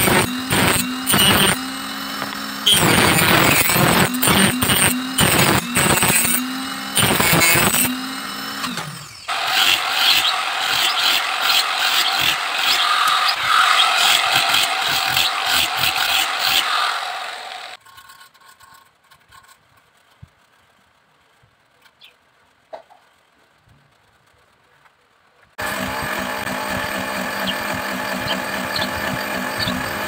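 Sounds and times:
angle grinder running: 0.0 - 17.8, 25.6 - 30.0
rotary power tool motor: 0.0 - 18.2, 25.6 - 30.0.

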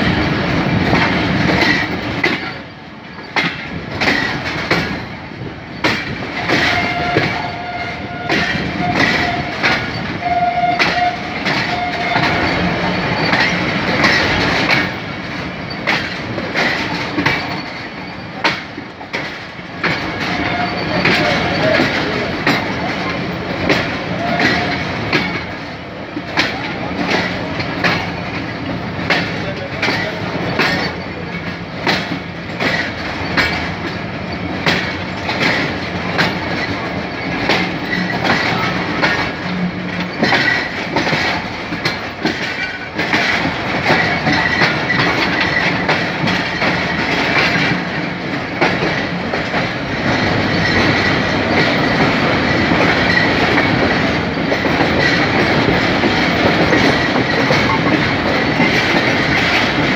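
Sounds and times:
train wheels clacking over rail joints: 0.0 - 59.9
high metallic squeal: 6.5 - 13.6, 20.2 - 21.8.

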